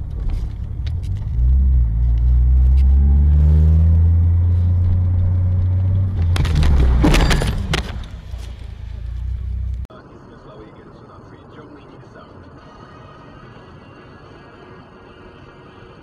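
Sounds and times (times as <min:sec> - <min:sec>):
car engine revving: 0:00.0 - 0:09.9.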